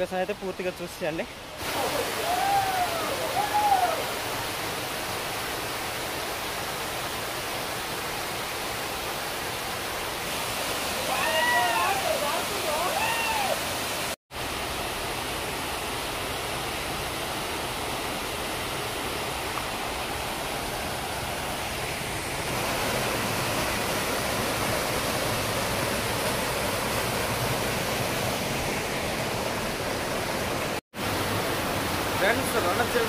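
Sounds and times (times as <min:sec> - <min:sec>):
waterfall rushing: 0:00.0 - 0:33.0.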